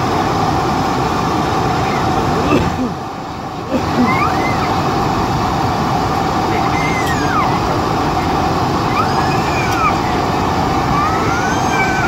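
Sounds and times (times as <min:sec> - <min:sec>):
airplane cabin engine noise: 0:00.0 - 0:12.0
constant hum: 0:00.0 - 0:12.0.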